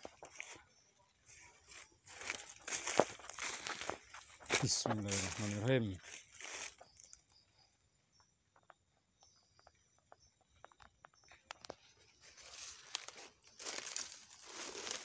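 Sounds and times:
footsteps crunching dry leaves: 0:00.0 - 0:07.2, 0:12.2 - 0:15.0.

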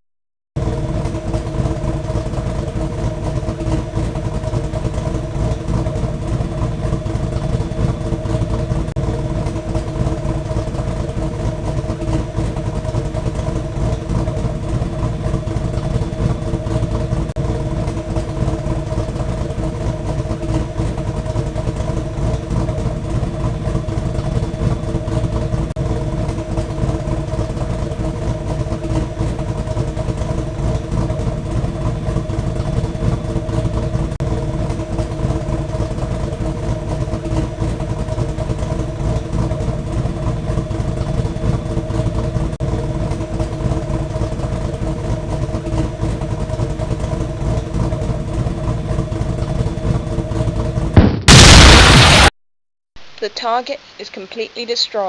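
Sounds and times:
ship engine drone: 0:51.0 - 0:52.3.

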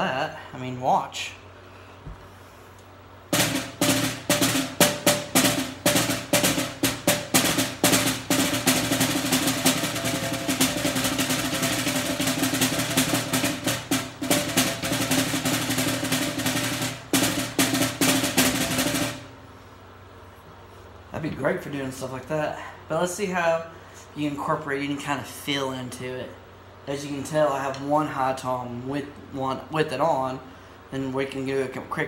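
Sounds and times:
muffled snare drum strokes and roll: 0:03.3 - 0:19.4.

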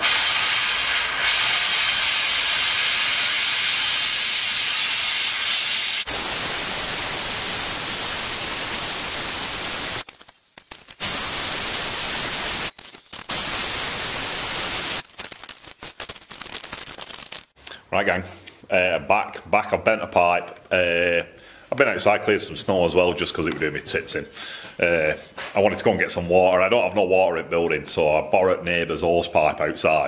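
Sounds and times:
gas torch flame hissing: 0:00.0 - 0:10.1, 0:10.9 - 0:15.0.

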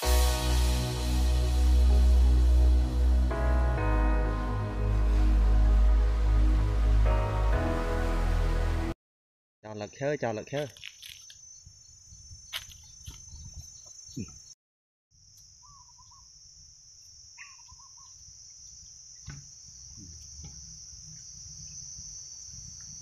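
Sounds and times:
insects buzzing: 0:09.7 - 0:23.0
short chirping calls: 0:11.0 - 0:14.6, 0:15.6 - 0:16.3, 0:17.4 - 0:18.2.

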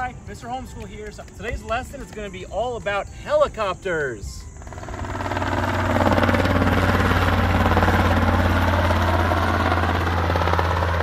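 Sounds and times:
helicopter engine drone: 0:04.4 - 0:11.0
rotor blades beating: 0:04.4 - 0:11.0.

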